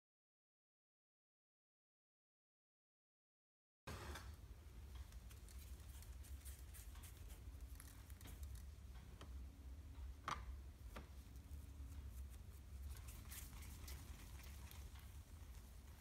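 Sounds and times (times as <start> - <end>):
low steady hum: 3.9 - 16.0.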